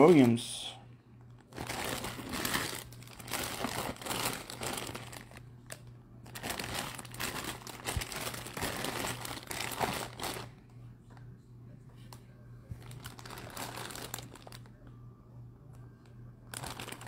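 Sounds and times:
plastic bag crinkling: 1.4 - 10.6, 12.8 - 14.8, 16.5 - 17.0.

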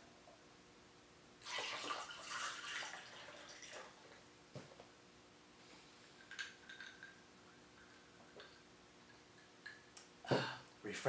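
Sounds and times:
water pouring into glass: 1.4 - 4.1.

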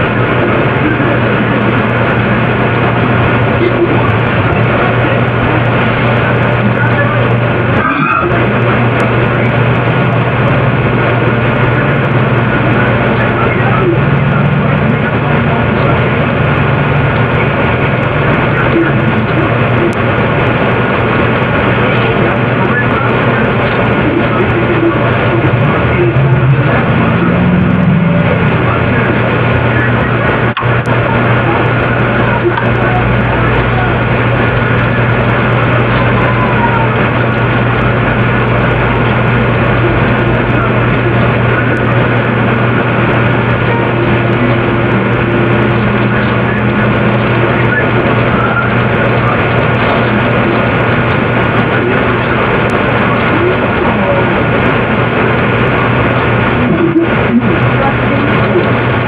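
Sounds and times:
constant low hum: 0.0 - 59.0
dense wash of noise: 0.0 - 59.0
loud low drone: 0.0 - 59.0
faint pitched tone: 6.1 - 8.6, 22.6 - 50.8, 56.5 - 58.6.

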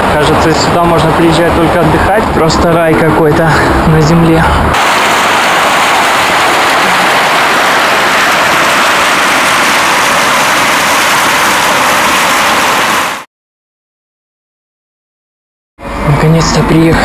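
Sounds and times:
fountain water splashing: 0.0 - 2.8, 4.8 - 13.2.

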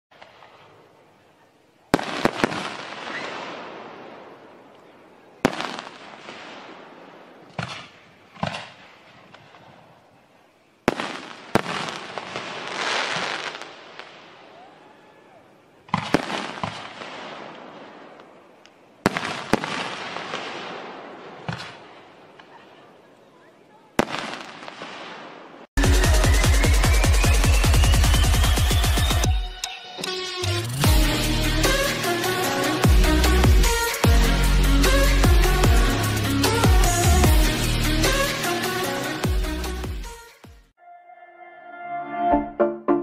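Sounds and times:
fireworks crackling and hissing: 0.1 - 15.0, 15.6 - 29.3, 30.6 - 40.5
fireworks bangs: 1.9 - 10.0, 10.8 - 14.7, 15.8 - 23.0, 23.9 - 29.5.

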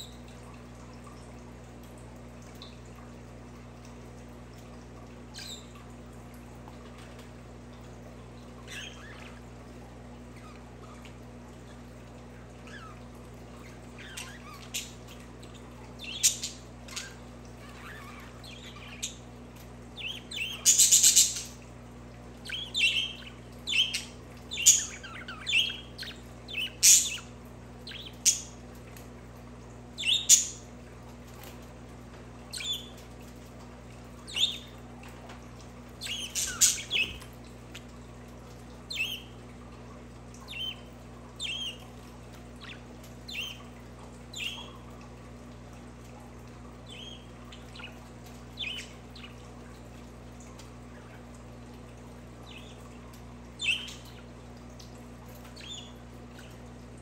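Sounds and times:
budgerigars chirping: 20.0 - 21.5, 22.5 - 27.3, 36.0 - 37.2, 48.6 - 49.4, 53.6 - 54.2.

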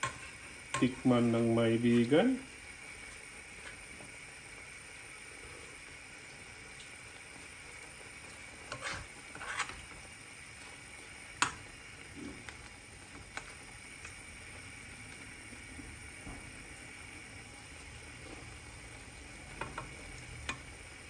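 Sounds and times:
metal spoon scraping a pan: 0.0 - 1.1, 8.6 - 10.0
simmering pan hiss: 0.0 - 21.0.

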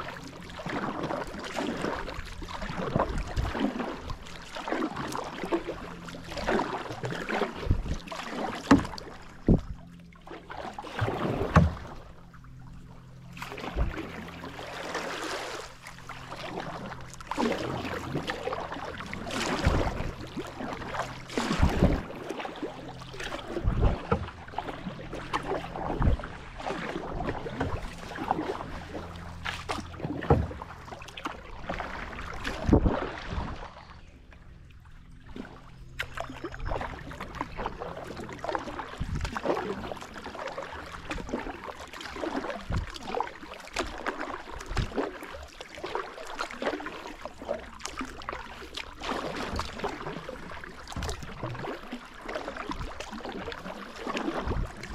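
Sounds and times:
paddle splashing water: 0.0 - 54.9
paddle knocking: 6.3 - 12.5, 16.4 - 33.3.

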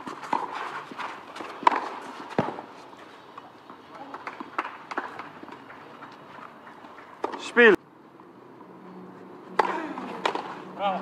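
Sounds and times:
tennis rackets hitting ball: 0.0 - 2.7, 3.7 - 5.8, 6.6 - 7.5, 9.5 - 11.0.

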